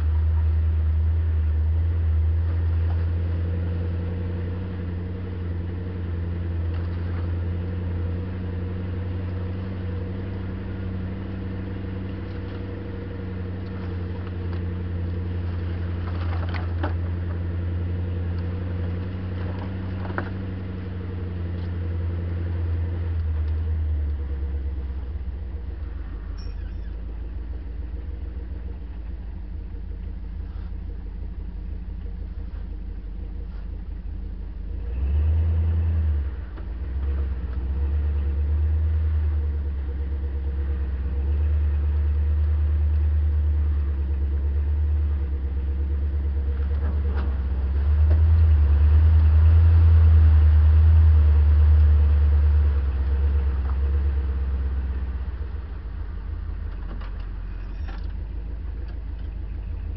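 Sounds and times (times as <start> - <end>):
engine rumbling: 0.0 - 59.9.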